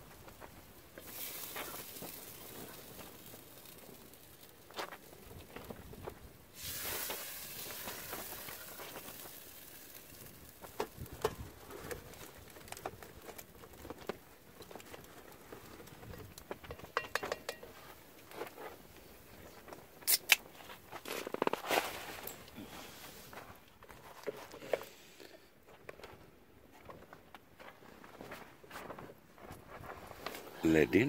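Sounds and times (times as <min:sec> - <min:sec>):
pot of beans sizzling: 0:00.0 - 0:23.4
hiss: 0:06.5 - 0:09.5.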